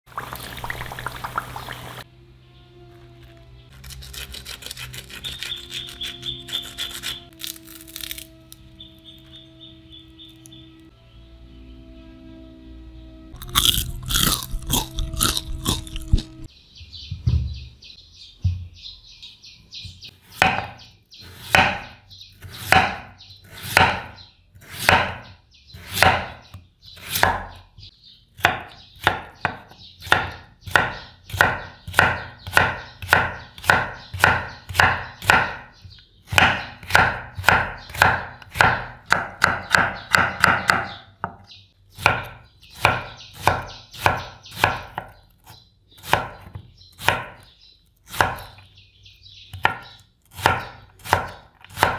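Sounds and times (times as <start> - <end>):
knife slicing potato: 20.4 - 26.4, 36.3 - 40.9, 46.0 - 47.4, 48.0 - 48.6, 49.5 - 51.9.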